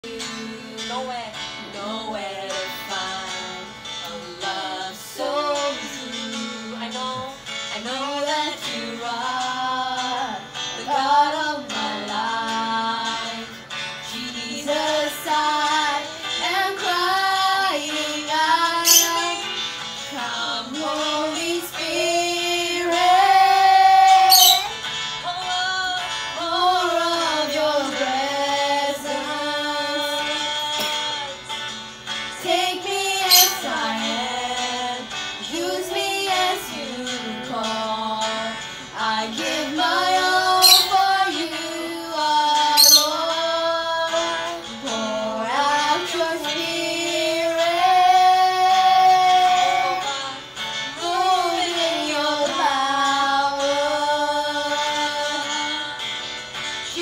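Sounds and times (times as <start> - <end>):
girls singing worship song: 0.0 - 57.0
instrumental backing with guitar: 0.0 - 57.0.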